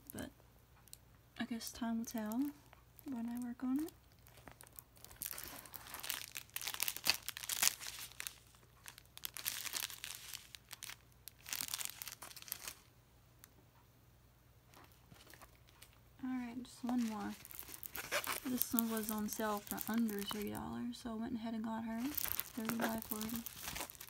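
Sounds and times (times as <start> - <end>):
plastic packaging crinkling: 2.0 - 12.9, 14.7 - 16.0, 16.8 - 20.6, 22.0 - 24.0.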